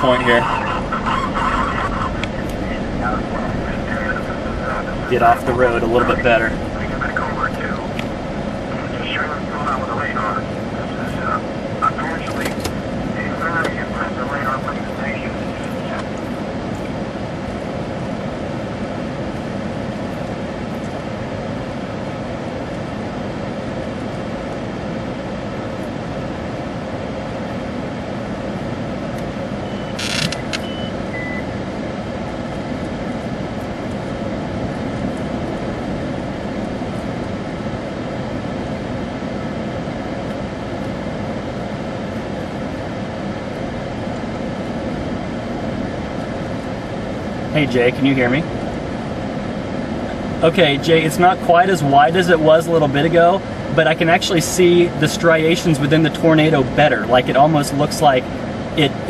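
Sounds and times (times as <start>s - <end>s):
vehicle engine running: 0.0s - 21.8s
faint hum tones: 0.0s - 59.0s.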